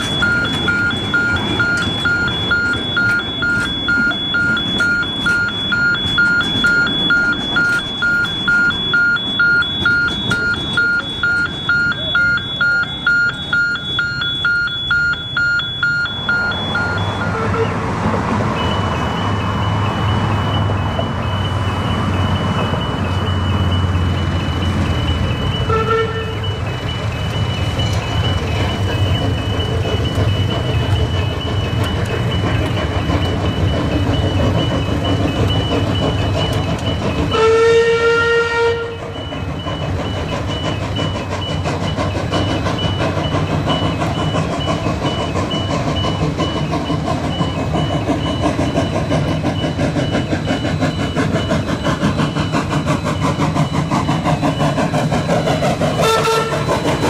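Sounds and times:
level crossing bell ringing: 0.0s - 17.5s
locomotive rumble: 0.0s - 57.0s
steam locomotive whistle: 7.0s - 17.9s, 25.3s - 26.9s, 34.2s - 46.7s, 47.3s - 57.0s.

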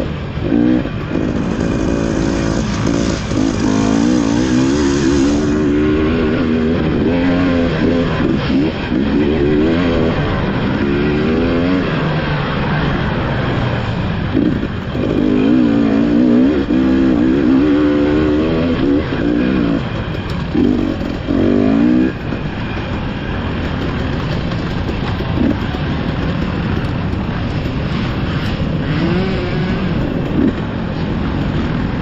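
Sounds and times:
dirt bike engine revving: 0.0s - 32.0s.

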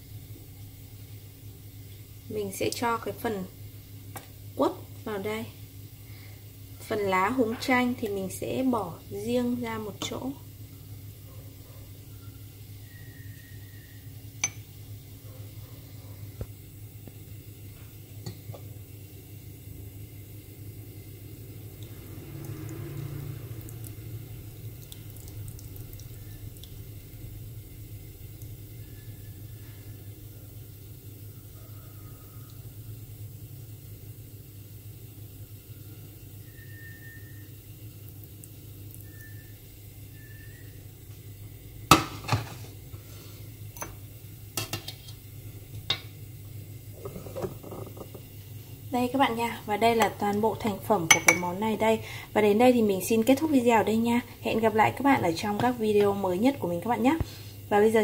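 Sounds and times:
steady low hum: 0.0s - 31.8s
syrup trickling into a jar: 21.3s - 30.1s
light drips and splashes: 21.4s - 29.9s, 37.9s - 39.5s.

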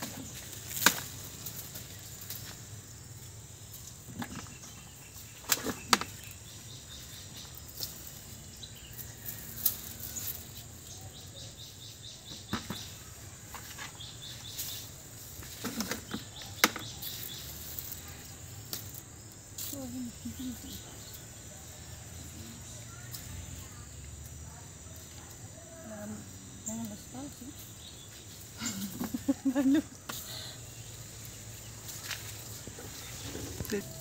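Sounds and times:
vine leaves rustling: 0.0s - 4.2s, 5.1s - 11.3s, 13.1s - 21.3s, 26.9s - 34.0s
high insect trill: 0.0s - 34.0s
stems snapping: 0.6s - 1.6s, 18.7s - 19.0s.

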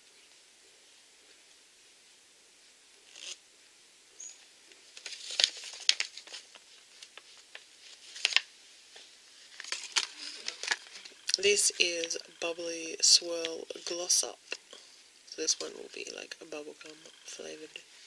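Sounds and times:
plastic packaging crinkling: 4.9s - 11.4s.

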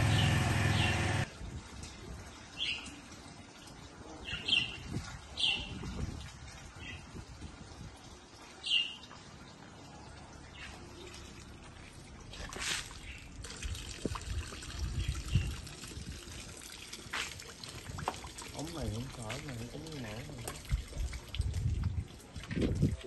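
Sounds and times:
bird chirping: 0.0s - 1.3s
water pouring and splashing: 1.2s - 23.0s.

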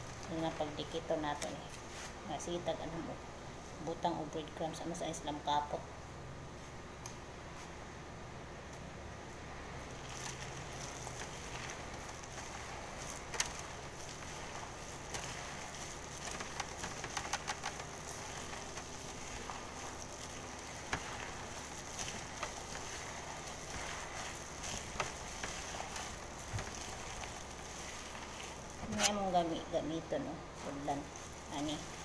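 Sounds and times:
hand squishing meat mixture: 0.0s - 3.2s, 9.7s - 32.0s
small clicks and ticks: 9.8s - 29.4s.

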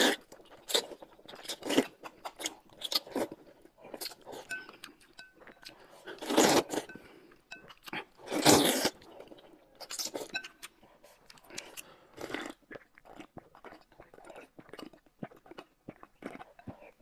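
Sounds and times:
slurping noodles: 0.0s - 0.8s, 5.8s - 7.0s, 8.2s - 9.2s.

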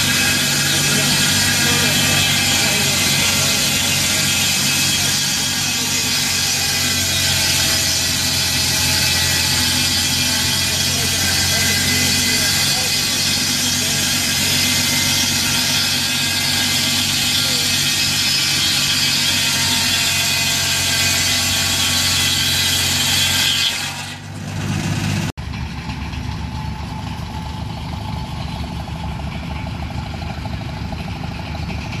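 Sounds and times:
tractor engine running: 0.0s - 18.6s, 24.2s - 32.0s
circular saw blade cutting log: 0.0s - 25.4s.

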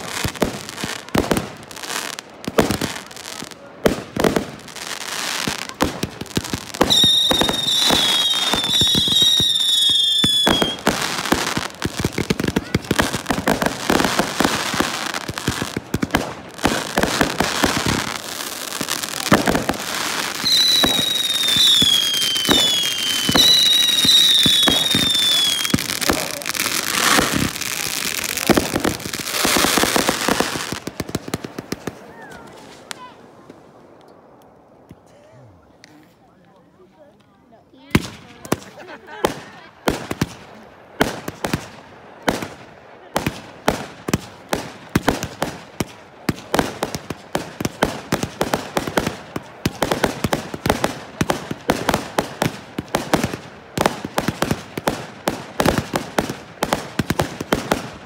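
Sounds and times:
fireworks cracking and banging: 0.0s - 35.1s, 37.8s - 58.0s
descending firework whistles: 6.8s - 11.3s, 20.2s - 27.6s.

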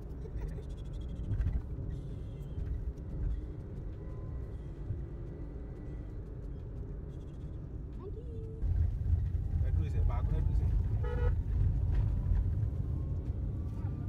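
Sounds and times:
motor vehicle rumbling on road: 0.0s - 14.0s.

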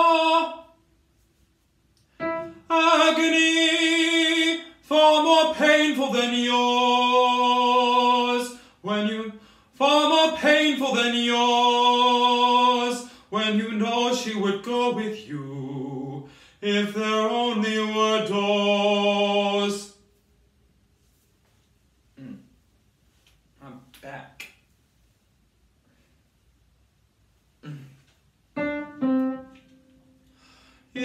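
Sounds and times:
man singing vocal warm-ups: 0.0s - 0.9s, 2.2s - 20.0s.

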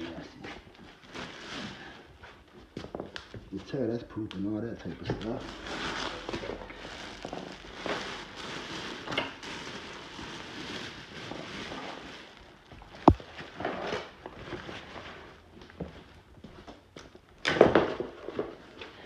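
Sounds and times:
trash rustling and crackling: 5.6s - 15.3s.

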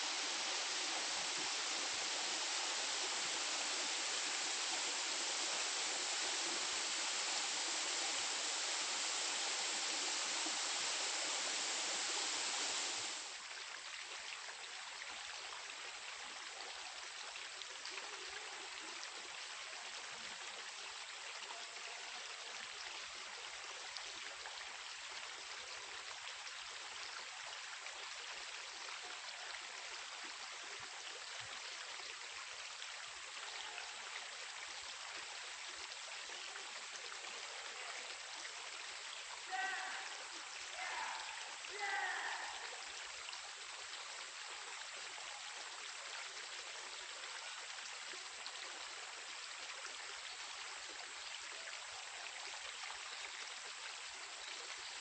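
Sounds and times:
water rushing over cascades: 0.0s - 13.4s, 39.2s - 43.6s.

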